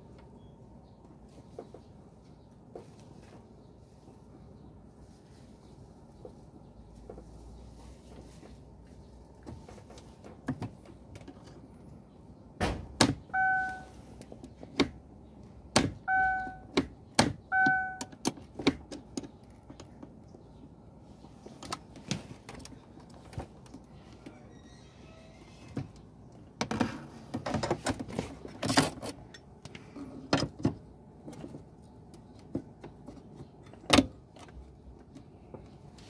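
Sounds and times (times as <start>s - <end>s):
short beeps: 13.3s - 14.0s, 16.1s - 16.7s, 17.5s - 18.1s.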